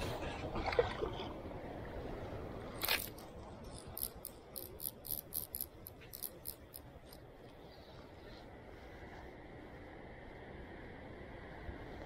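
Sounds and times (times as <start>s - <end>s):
steady low rush: 1.3s - 12.0s
fishing reel ticking: 3.8s - 7.2s.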